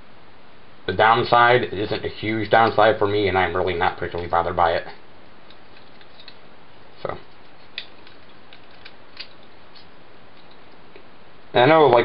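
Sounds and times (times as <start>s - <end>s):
steady hiss: 0.0s - 12.0s
plastic toy parts clicking: 5.4s - 6.4s, 7.4s - 10.8s.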